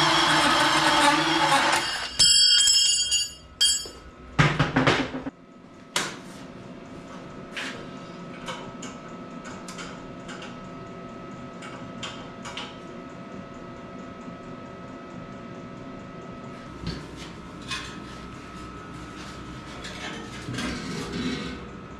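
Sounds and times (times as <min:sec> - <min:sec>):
loud shop tool running: 0:00.0 - 0:04.0, 0:16.7 - 0:21.9
knocks and clanks: 0:03.6 - 0:05.3.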